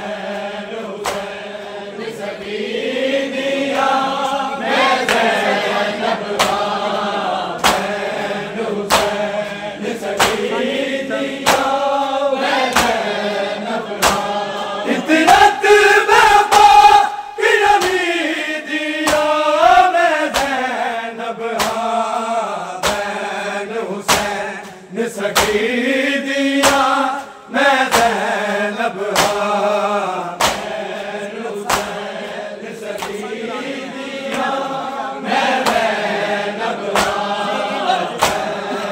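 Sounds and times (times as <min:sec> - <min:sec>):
men chanting a lament: 0:00.0 - 0:38.9
hands slapping chests: 0:01.0 - 0:01.6, 0:03.6 - 0:20.8, 0:21.5 - 0:22.2, 0:22.8 - 0:25.7, 0:26.5 - 0:28.4, 0:29.0 - 0:38.9.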